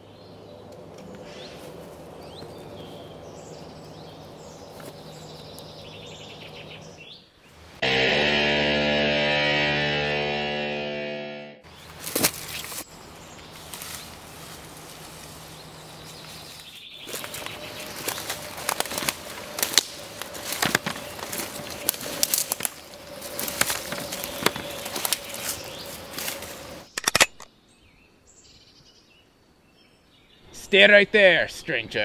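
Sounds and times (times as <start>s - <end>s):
footsteps crunching through dry leaves: 11.8s - 26.9s.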